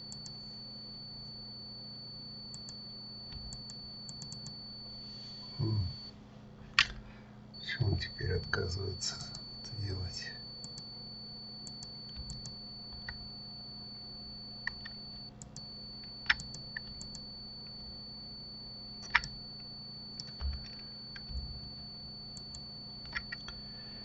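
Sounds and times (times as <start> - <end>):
thin high whine: 0.0 - 6.2, 6.8 - 24.0
low electrical hum: 0.0 - 24.0
computer keyboard presses: 11.7 - 13.2, 19.0 - 19.3
mouse clicks: 19.0 - 19.3.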